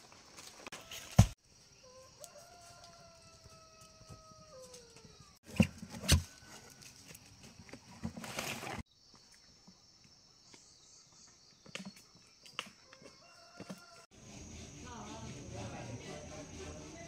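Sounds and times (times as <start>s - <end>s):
rooster crowing: 1.8s - 5.4s, 12.8s - 14.2s.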